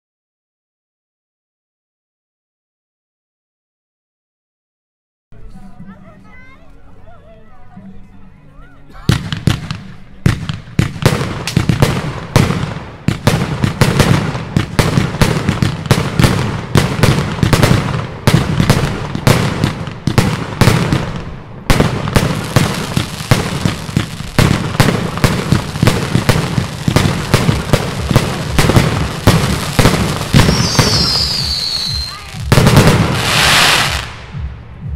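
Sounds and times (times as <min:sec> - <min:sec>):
fireworks launch thumps and bursts: 0:09.1 - 0:34.7
falling firework whistle: 0:30.4 - 0:32.3, 0:33.1 - 0:34.1.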